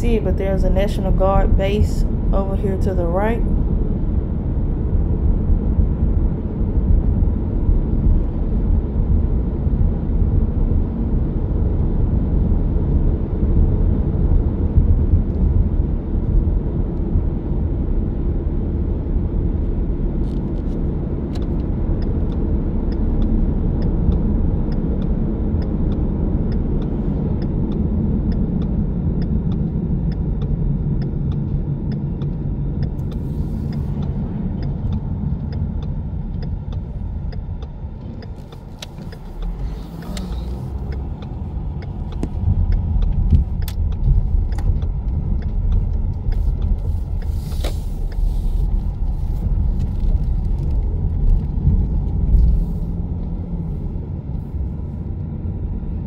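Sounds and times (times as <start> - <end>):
car tyres and engine rumble: 0.0 - 56.0
faint regular ticking: 21.4 - 48.3.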